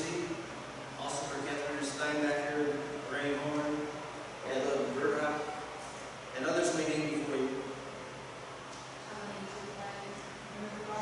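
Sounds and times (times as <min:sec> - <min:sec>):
man speaking: 0:00.0 - 0:00.4, 0:01.0 - 0:07.8
background hiss: 0:00.0 - 0:11.0.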